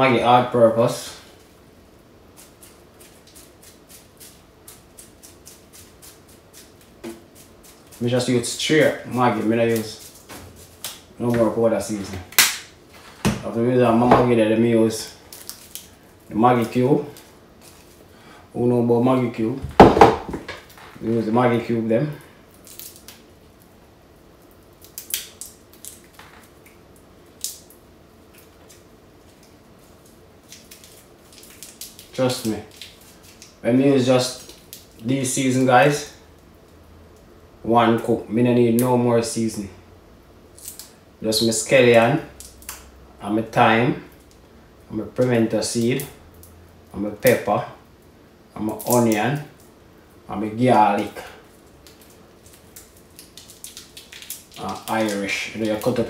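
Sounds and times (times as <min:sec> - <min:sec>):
foil crackling: 0:02.2 - 0:13.7, 0:14.8 - 0:18.4, 0:24.4 - 0:36.1, 0:50.9 - 0:56.0
seasoning shaker rattling: 0:02.3 - 0:11.2, 0:28.3 - 0:36.2, 0:50.8 - 0:56.0.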